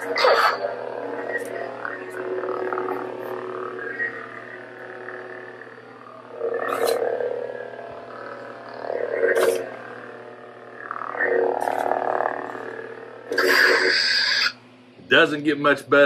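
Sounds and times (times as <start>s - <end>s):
toy lightsaber humming: 0.0s - 16.0s
lightsaber swing sounds: 9.1s - 9.7s.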